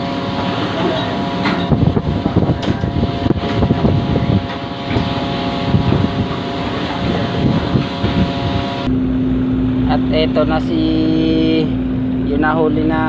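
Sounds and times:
boat machinery droning: 0.0 - 13.0
wind rumbling on microphone: 1.6 - 8.9.

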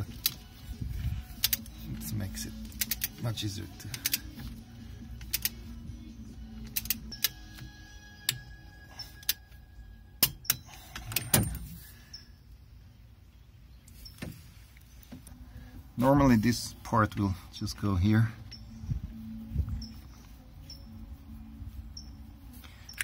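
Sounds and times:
ratchet wrench clicking: 1.4 - 1.7, 2.6 - 3.2, 3.8 - 4.5, 5.2 - 5.6, 6.6 - 8.5.

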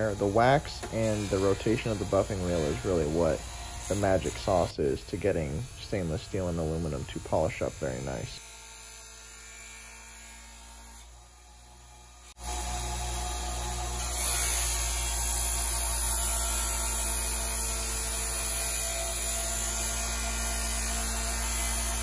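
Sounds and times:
metal polishing hiss: 0.0 - 8.4
electric bench buffer humming: 0.0 - 22.0.

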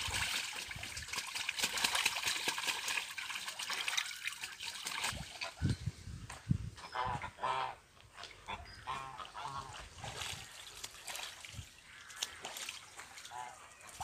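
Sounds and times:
birds splashing in water: 0.0 - 5.7, 6.9 - 14.0
geese honking: 6.8 - 7.8, 8.4 - 10.0.

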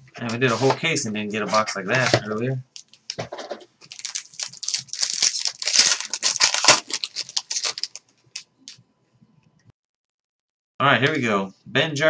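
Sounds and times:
plastic wrapper tearing and crinkling: 2.8 - 3.2, 3.8 - 8.8.

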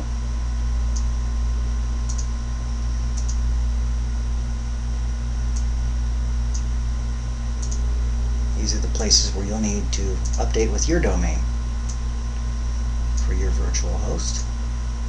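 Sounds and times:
low electrical hum with hiss: 0.0 - 15.0
soft computer clicks: 2.1 - 2.3, 3.1 - 3.4, 7.6 - 7.8, 10.2 - 10.5.

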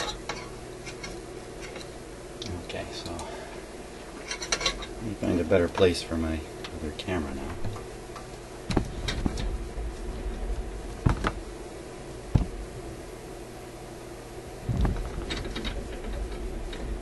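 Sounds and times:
steady low hum: 0.0 - 17.0
dull thump: 11.0 - 11.4, 12.3 - 12.7, 14.6 - 15.3.

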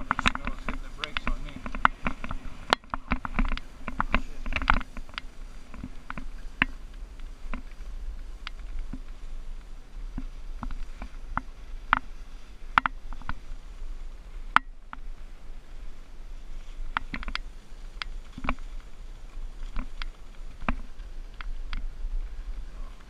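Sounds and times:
sharp clicks and ticks: 0.0 - 7.8
skis running over snow: 0.0 - 23.0.

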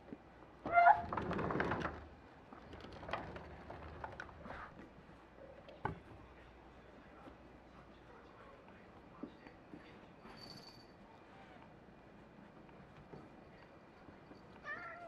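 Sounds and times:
cats scuffling: 1.1 - 6.4
cat meowing: 14.6 - 15.0.

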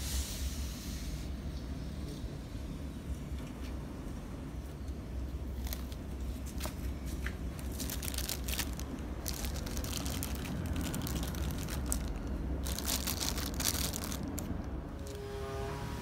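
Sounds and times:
plastic wrapping crinkling: 5.6 - 15.2.

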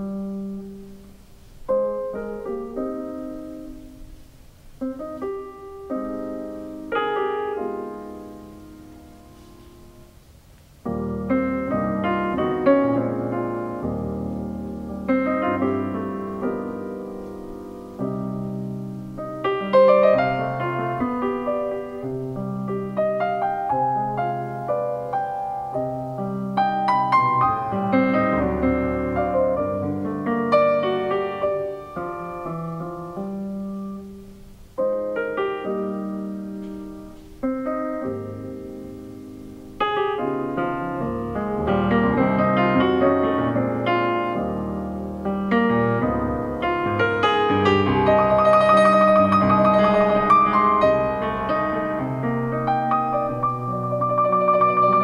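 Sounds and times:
grand piano chords and runs: 0.0 - 55.0.

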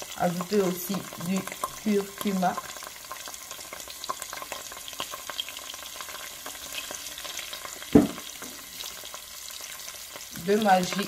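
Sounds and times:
paste frying in hot oil: 0.0 - 11.0
loud knock: 8.0 - 8.2.

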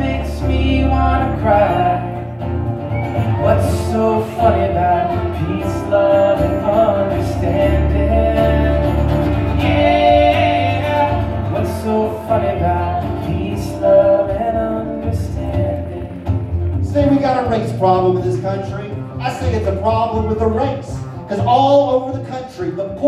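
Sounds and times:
person singing: 0.0 - 2.3, 3.3 - 16.5
acoustic folk instruments: 0.0 - 23.0.

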